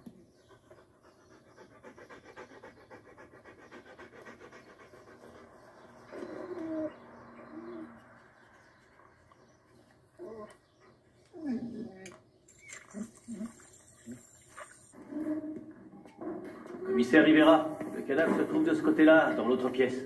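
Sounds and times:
dog panting: 0:00.0 - 0:11.7.

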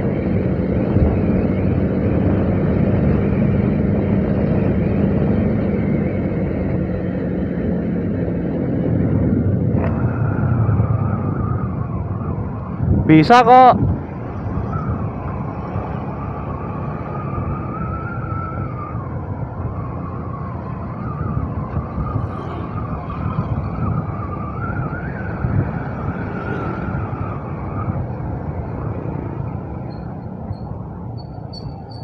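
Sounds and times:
road wind noise: 0:00.0 - 0:32.0
wavering whining tone: 0:16.7 - 0:28.1, 0:29.6 - 0:32.0.

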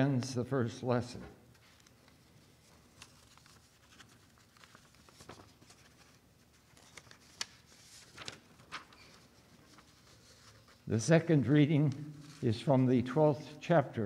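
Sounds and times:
paper rustling: 0:01.4 - 0:10.9, 0:11.8 - 0:12.9.

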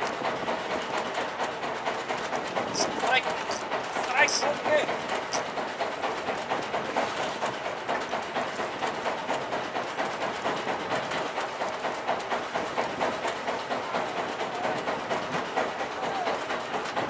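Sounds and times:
fishing reel clicking whir: 0:02.3 - 0:03.6, 0:04.2 - 0:04.5.

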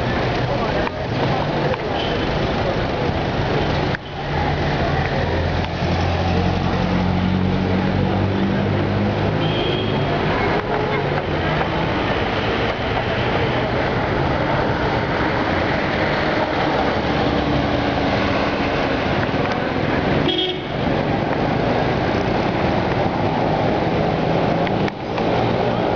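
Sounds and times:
vehicle engines passing: 0:00.0 - 0:25.9
car horn tooting: 0:20.2 - 0:20.8.

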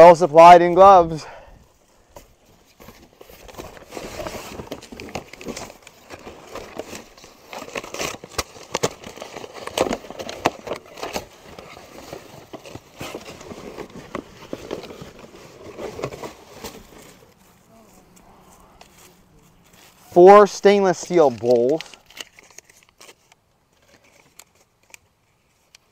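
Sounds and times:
cardboard box being opened: 0:02.2 - 0:17.4
packing paper crumpling: 0:02.5 - 0:25.9.

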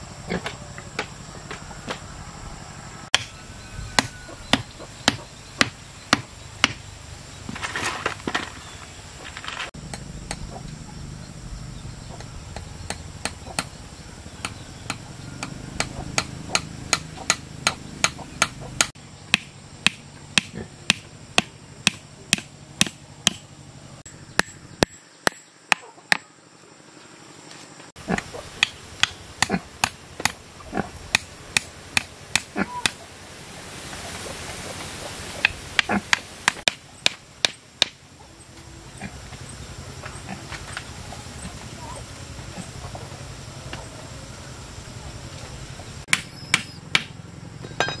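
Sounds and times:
hammer striking wooden frame: 0:03.1 - 0:03.4, 0:04.0 - 0:06.8, 0:14.4 - 0:23.4, 0:46.1 - 0:48.0.

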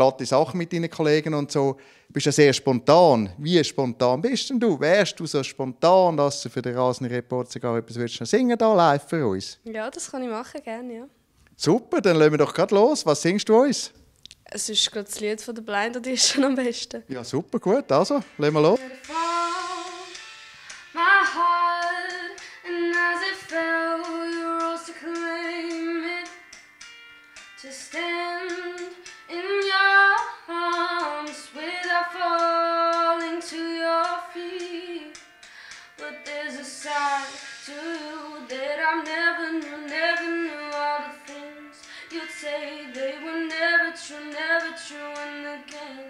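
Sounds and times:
singer breathing: 0:01.8 - 0:02.2, 0:20.3 - 0:20.9, 0:22.4 - 0:22.7, 0:35.4 - 0:36.0, 0:41.8 - 0:42.2
woman singing: 0:18.8 - 0:20.2, 0:20.9 - 0:26.4, 0:27.6 - 0:35.2, 0:36.0 - 0:46.0.

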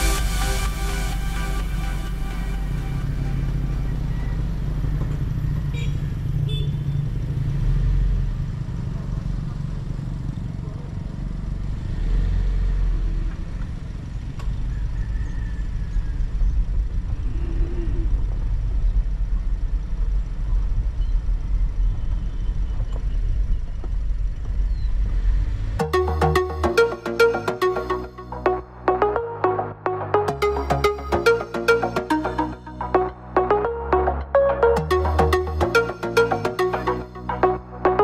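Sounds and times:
vehicle engine and road rumble: 0:00.0 - 0:25.8.

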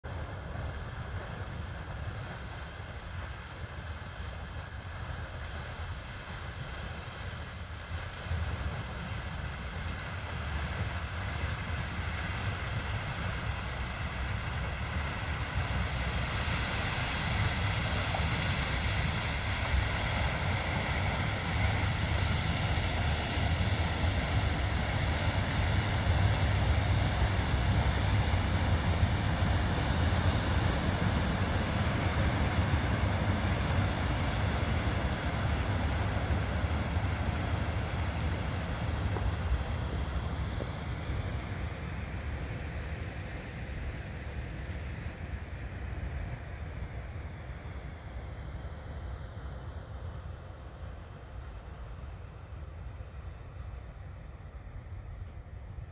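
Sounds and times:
boat engine rumble: 0:00.1 - 0:42.6.

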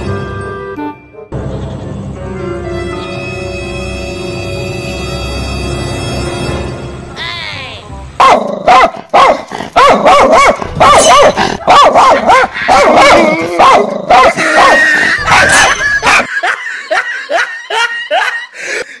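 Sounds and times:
recorded dog barking on loudspeaker: 0:08.2 - 0:16.3.

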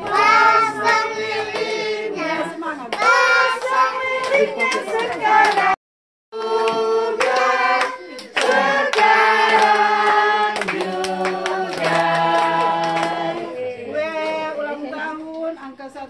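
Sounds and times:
group singing birthday song: 0:00.0 - 0:15.3
hands clapping: 0:00.8 - 0:01.8, 0:02.9 - 0:05.8, 0:06.4 - 0:13.2.

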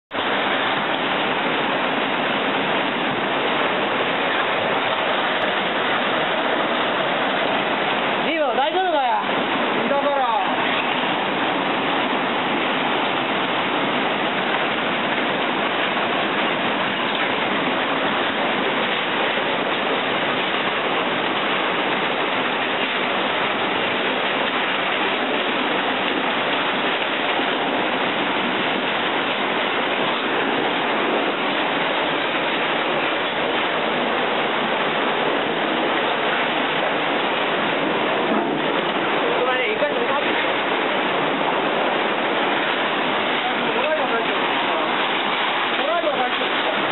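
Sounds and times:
floodwater rushing: 0:00.0 - 0:46.9.

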